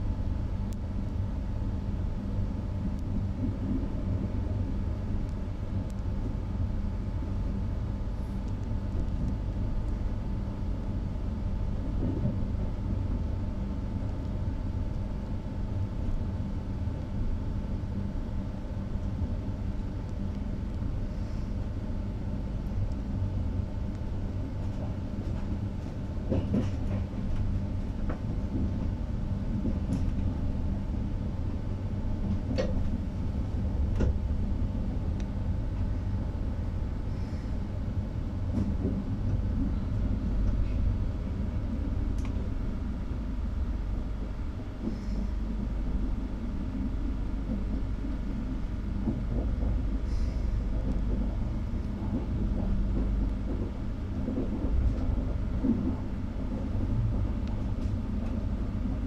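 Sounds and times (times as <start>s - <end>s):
train wheels rumbling on rails: 24.1s - 59.0s.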